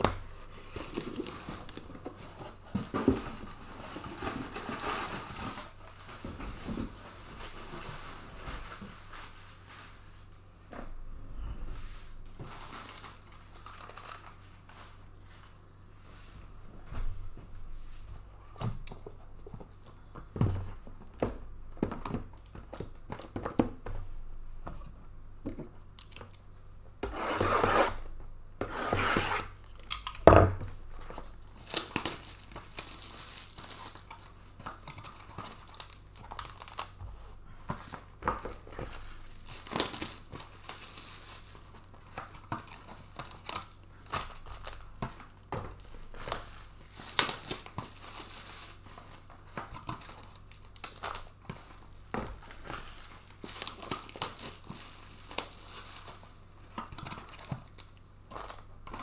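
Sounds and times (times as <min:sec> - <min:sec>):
plastic wrap crinkling: 0:00.2 - 0:10.4, 0:12.2 - 0:15.6, 0:29.4 - 0:59.0.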